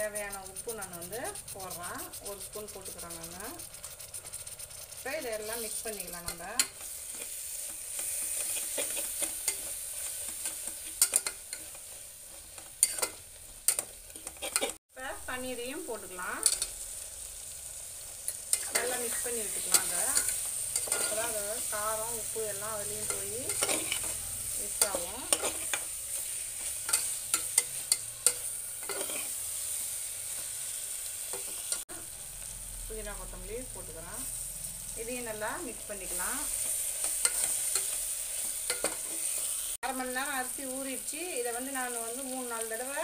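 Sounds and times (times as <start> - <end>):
metal spatula scraping pot: 0.0 - 14.8, 16.4 - 16.8, 18.2 - 30.5, 36.1 - 39.6
masala sizzling: 0.0 - 43.0.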